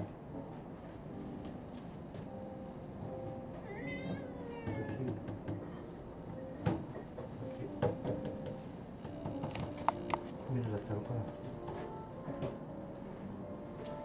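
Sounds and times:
cat meowing: 3.6 - 5.2.

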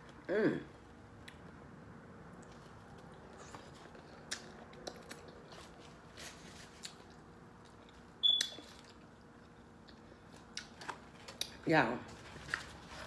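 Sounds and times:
person chewing food: 2.2 - 11.5.

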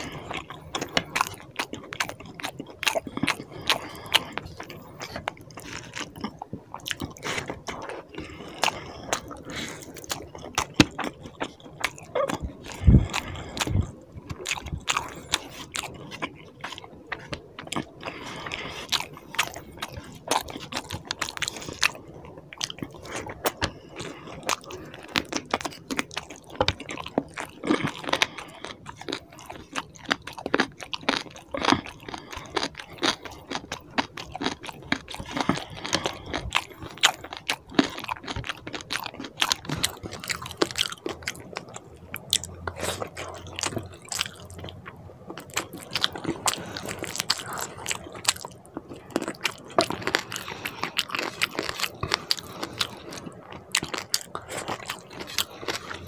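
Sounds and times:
wet chewing and smacking: 0.0 - 56.0.

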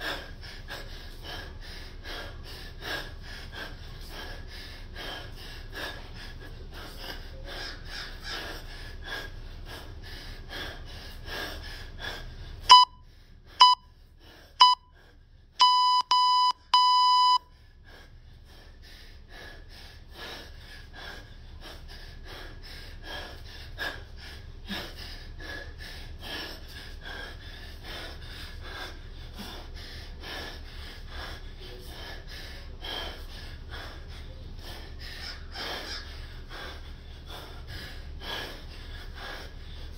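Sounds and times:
man breathing hard: 0.0 - 39.9
electronic timer beeps: 12.7 - 13.0, 13.6 - 13.9, 14.6 - 14.9, 15.6 - 17.4.

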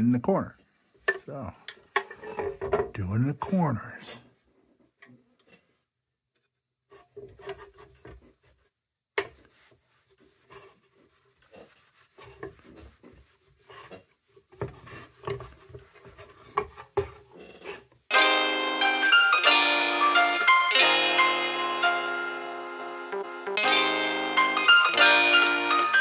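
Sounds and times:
brush scrubbing strokes: 9.3 - 18.1, 19.8 - 23.0.

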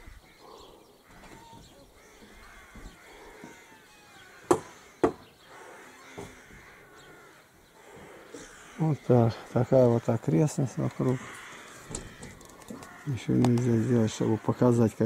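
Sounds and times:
hammer knocking on wooden boards: 4.4 - 5.2, 6.2 - 6.6.

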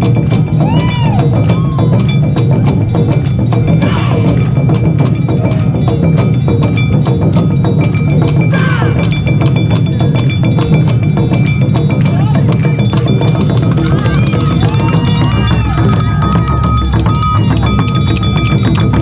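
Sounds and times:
hand gong clanging: 0.0 - 19.0
taiko drums beating: 0.0 - 19.0
people shouting: 0.5 - 2.9, 3.7 - 4.6, 8.5 - 9.2, 13.2 - 19.0.

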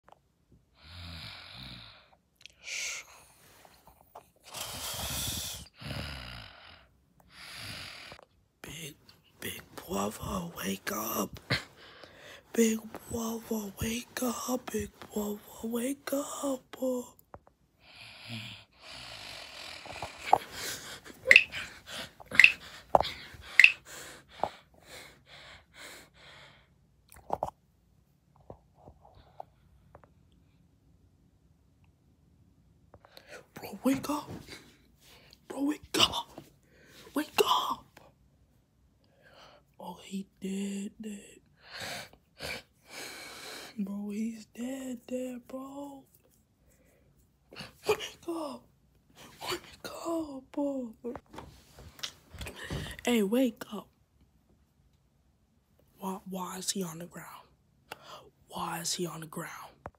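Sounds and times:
person snoring: 0.8 - 2.2, 4.4 - 8.2, 17.9 - 23.8
hissing breaths: 4.4 - 8.2, 17.8 - 26.7.

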